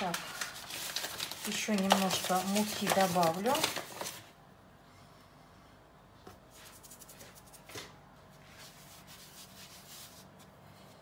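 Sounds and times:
hand spreading flour on countertop: 0:06.4 - 0:11.0.

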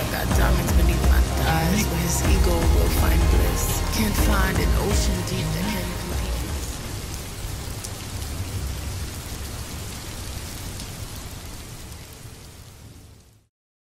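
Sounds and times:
low rumble: 0:00.0 - 0:07.6
rain falling steadily: 0:00.0 - 0:13.5.

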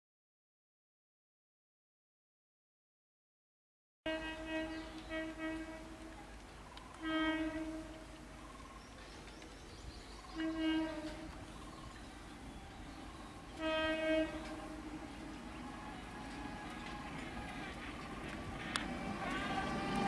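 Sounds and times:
train horn blasts: 0:04.1 - 0:06.3, 0:07.0 - 0:08.3, 0:10.3 - 0:11.5, 0:13.4 - 0:20.0
train rumbling over track: 0:04.1 - 0:20.0.

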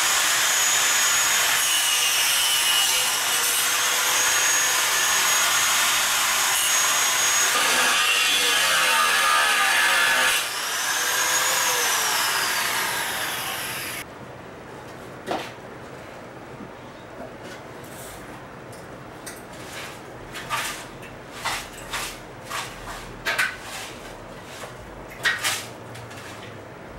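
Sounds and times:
angle grinder cutting metal pipe: 0:00.0 - 0:14.0.

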